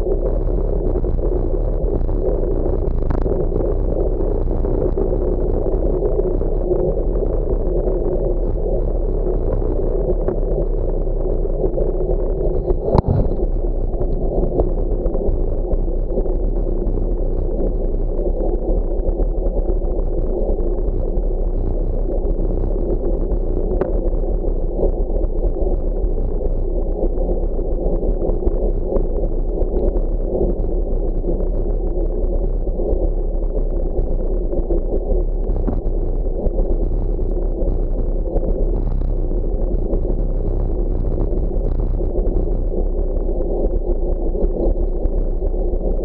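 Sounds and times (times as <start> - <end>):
wind rushing: 12.7 - 13.7.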